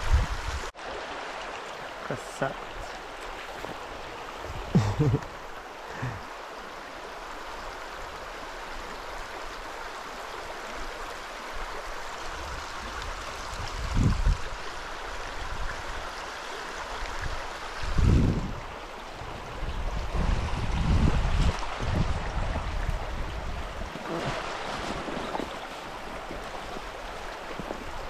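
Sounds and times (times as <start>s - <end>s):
river water rushing: 0.0s - 28.0s.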